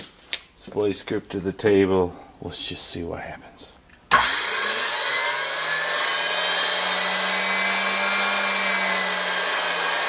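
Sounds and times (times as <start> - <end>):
electric motor whining: 4.1 - 10.0.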